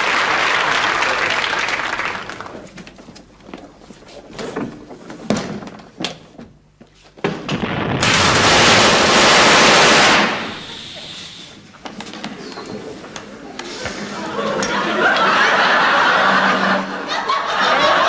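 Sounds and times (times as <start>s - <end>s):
submachine gun burst: 7.5s - 11.2s.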